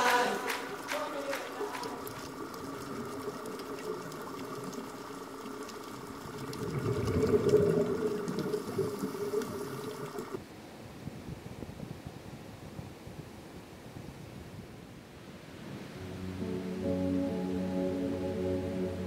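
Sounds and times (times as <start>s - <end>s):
underwater rushing and bubbling: 1.8s - 10.4s.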